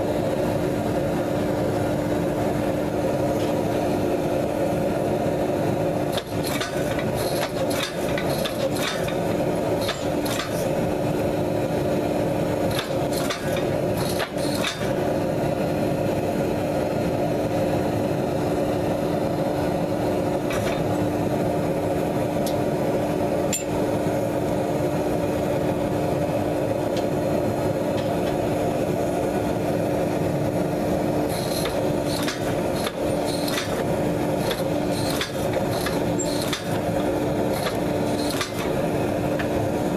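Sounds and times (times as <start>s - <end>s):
hydraulic press pump humming: 6.0s - 11.4s, 12.4s - 15.4s, 19.2s - 21.4s, 31.2s - 39.9s.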